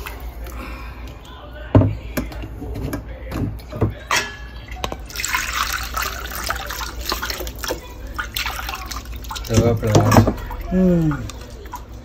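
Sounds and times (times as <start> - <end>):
metal vessels clinking: 1.8 - 12.0
liquid splashing into metal bowl: 3.2 - 12.0.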